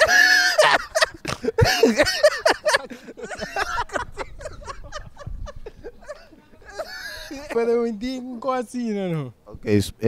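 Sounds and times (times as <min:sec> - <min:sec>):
men laughing: 0:00.0 - 0:08.0.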